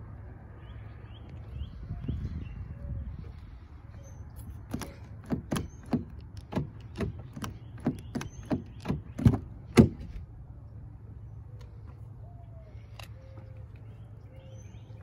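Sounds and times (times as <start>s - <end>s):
car door handle clicking: 4.7s - 10.1s.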